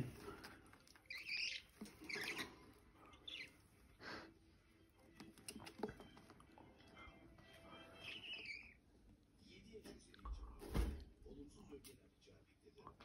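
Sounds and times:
budgerigars chirping: 1.0 - 3.7, 7.7 - 8.8.

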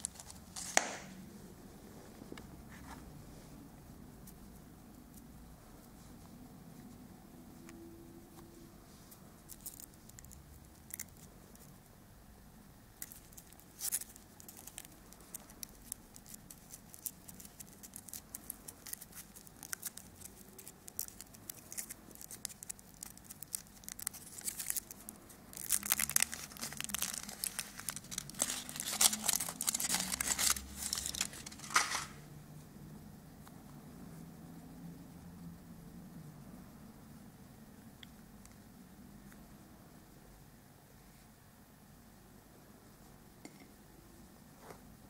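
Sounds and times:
foil wrapper crinkling: 13.0 - 32.2.

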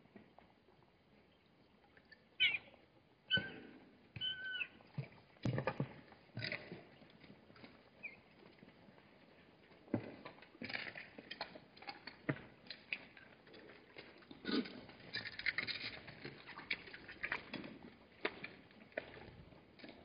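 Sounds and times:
animals drinking: 9.9 - 20.0.

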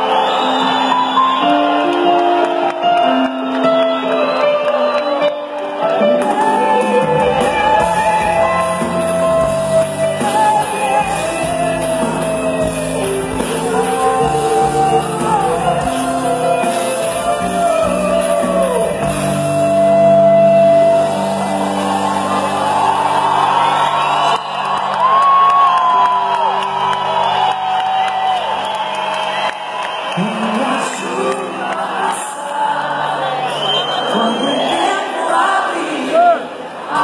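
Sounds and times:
live pop-rock band: 0.0 - 36.3
person singing: 4.0 - 21.1, 30.2 - 37.0.

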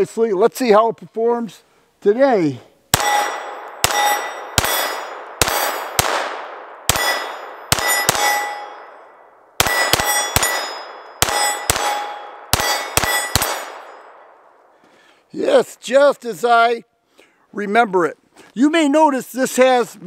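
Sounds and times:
pistol shots: 2.9 - 14.4
steel plate target clanging: 3.0 - 6.0, 6.9 - 14.2.

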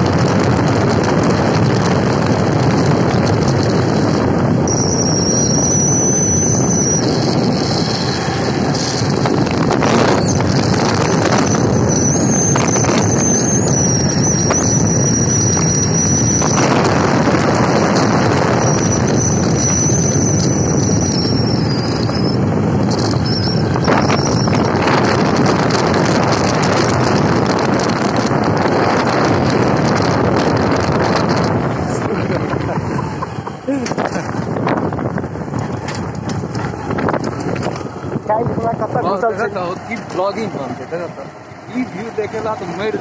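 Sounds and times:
motorbike engine and road noise: 0.0 - 43.0
wind buffeting microphone: 0.0 - 43.0
thin high whistle: 4.7 - 7.3, 11.4 - 16.6.

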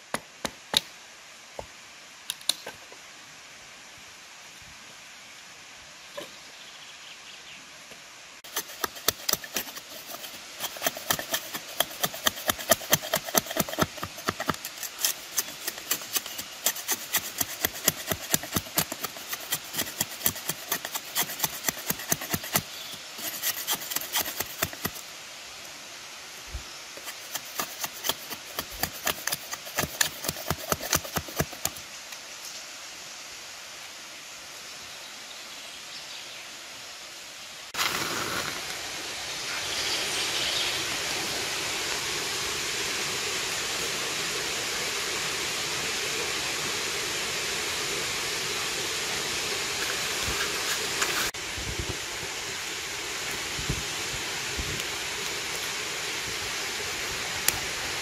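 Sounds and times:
hand saw cutting wood: 8.4 - 25.0, 27.0 - 31.8, 49.8 - 51.4.

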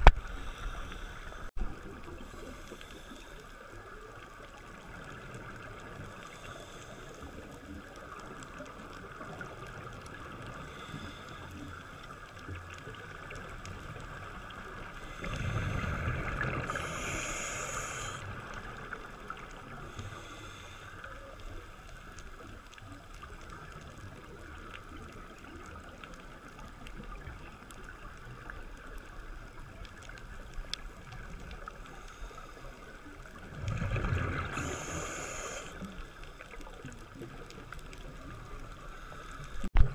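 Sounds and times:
underwater hiss: 0.0 - 3.9, 5.4 - 8.2, 9.1 - 22.5, 31.0 - 36.6, 37.9 - 39.7
scuba regulator bubbles: 0.0 - 39.9.

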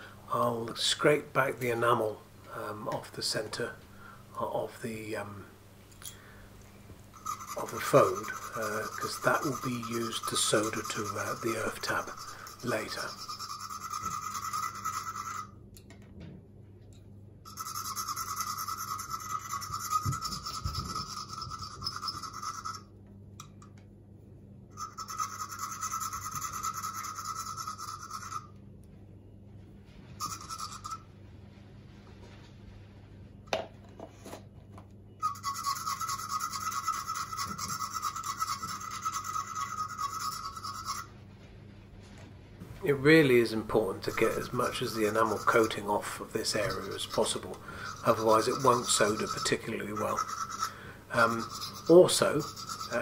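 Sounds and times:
knife scraping wire: 7.2 - 15.5, 17.5 - 23.6, 24.8 - 28.5, 30.2 - 31.1, 35.2 - 41.1, 43.5 - 53.0.

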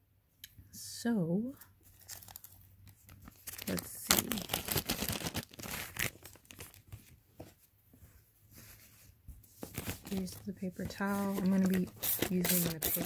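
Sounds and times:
plastic bag crinkling: 1.8 - 7.1, 9.7 - 13.0.

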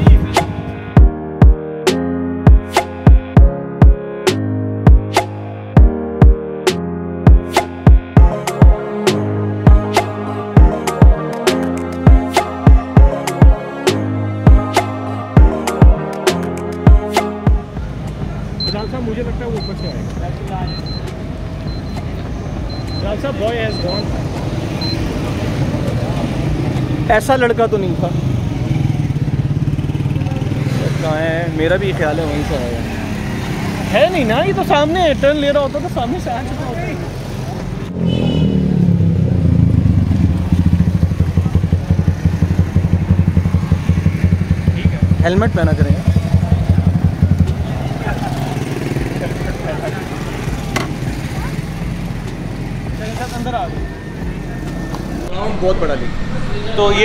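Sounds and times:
music with drum beat and chords: 0.0 - 18.8, 19.4 - 24.5.

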